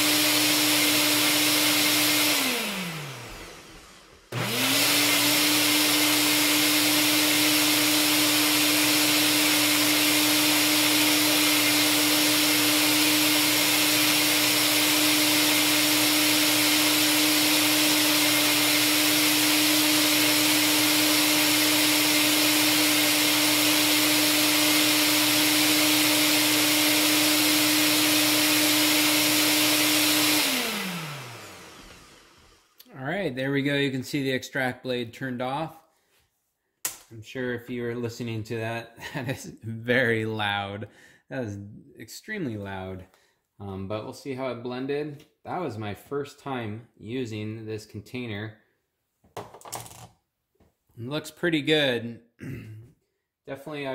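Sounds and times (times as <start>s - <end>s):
blender motor whine: 0.0s - 32.8s.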